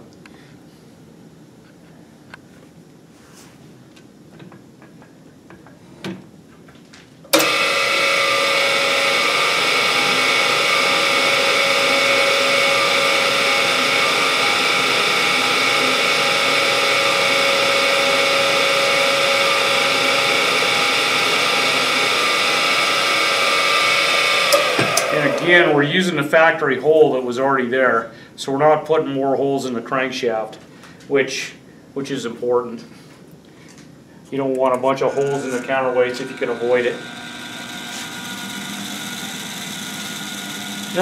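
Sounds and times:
drill press whining: 0:07.3 - 0:25.8, 0:34.5 - 0:41.0.

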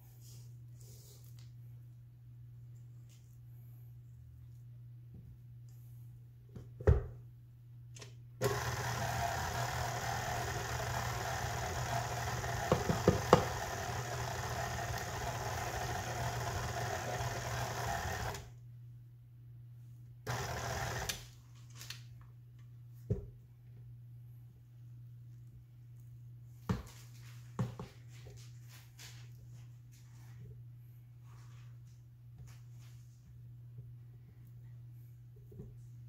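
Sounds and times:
stand mixer beating dough: 0:08.4 - 0:18.5, 0:20.3 - 0:21.2.

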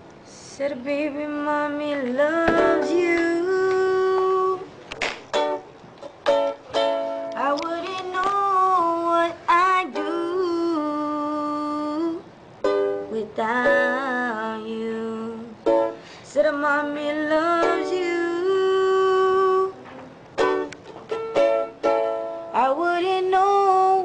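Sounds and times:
plucked string accompaniment: 0:04.1 - 0:10.7, 0:12.6 - 0:14.2, 0:17.4 - 0:18.5, 0:19.2 - 0:24.0.

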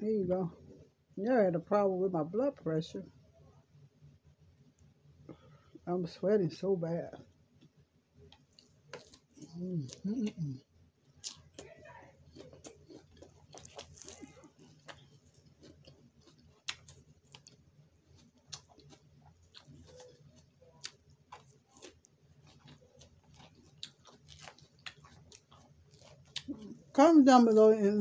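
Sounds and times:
chewing lettuce: 0:08.4 - 0:27.7.

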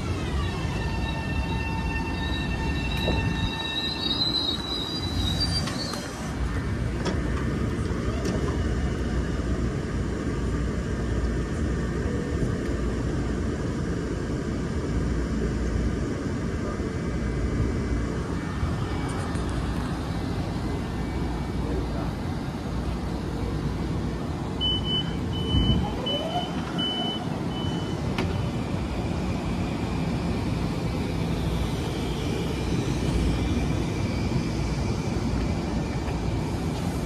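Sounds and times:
high squeal: 0:00.0 - 0:06.3
train wheels rumbling on rails: 0:00.0 - 0:37.0.

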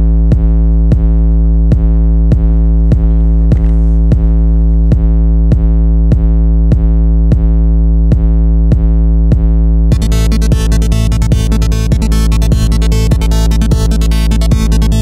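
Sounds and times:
drum-machine beat: 0:00.0 - 0:15.0
heavy bass: 0:00.0 - 0:15.0
synthesizer chord: 0:09.9 - 0:15.0.

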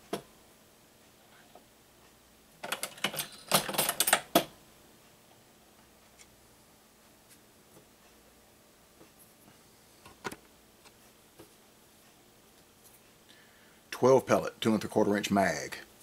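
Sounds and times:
reloading press metal clicks: 0:02.6 - 0:04.5.

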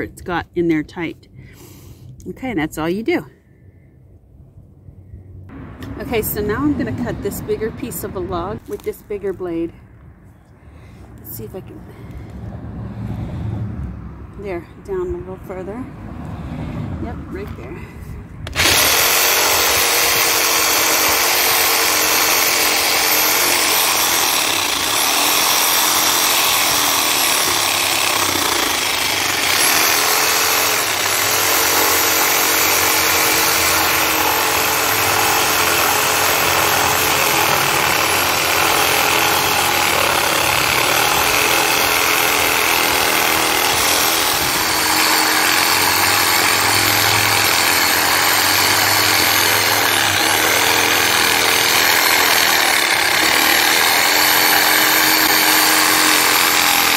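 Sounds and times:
reciprocating saw cutting log: 0:18.5 - 0:56.9.

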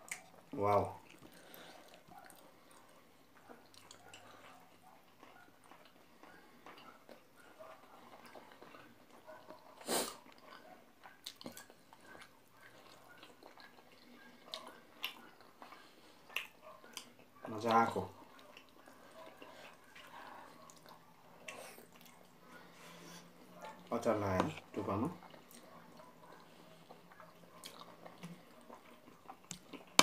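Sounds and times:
person chewing food: 0:00.0 - 0:30.0
mouth clicks and smacks: 0:16.3 - 0:17.3.

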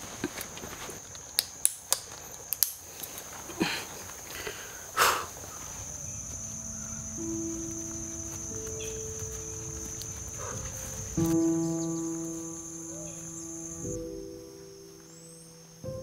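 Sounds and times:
insects droning: 0:00.0 - 0:16.0
soft held music notes: 0:05.5 - 0:16.0.

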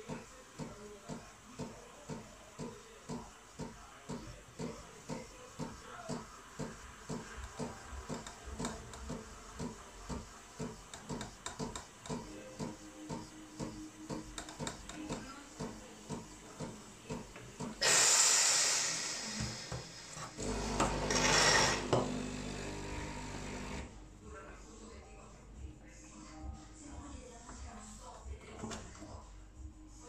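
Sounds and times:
espresso machine pulsing thumps: 0:00.0 - 0:18.0, 0:19.3 - 0:23.8
steam wand hissing: 0:17.8 - 0:20.3.

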